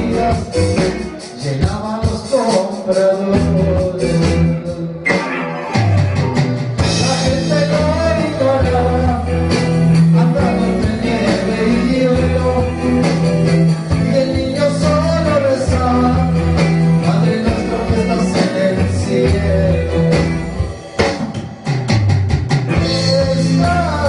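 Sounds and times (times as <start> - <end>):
man singing: 0.0 - 20.6, 22.7 - 24.0
bass line: 0.0 - 24.0
electric guitars: 0.0 - 24.0
electronic drum beat: 5.1 - 11.6, 12.6 - 24.0.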